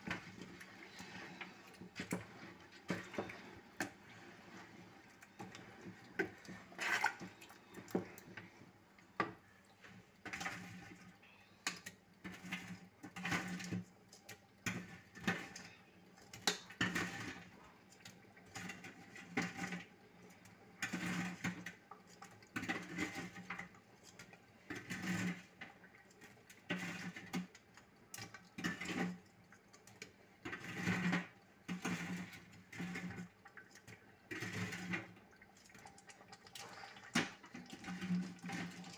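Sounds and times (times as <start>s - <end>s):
spoon stirring thick stew: 0.0s - 11.1s.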